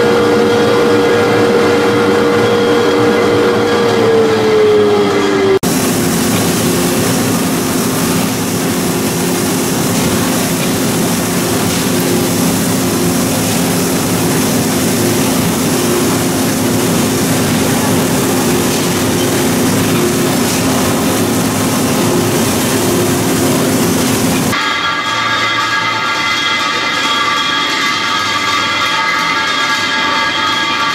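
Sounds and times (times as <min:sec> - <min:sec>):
low machinery hum: 0:00.0 - 0:24.6
machinery hiss: 0:05.6 - 0:24.6.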